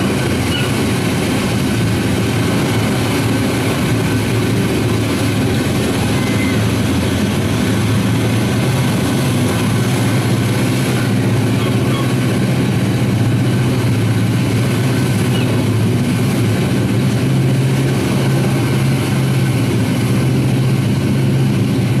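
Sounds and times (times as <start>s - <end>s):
aircraft engines droning: 0.0s - 22.0s.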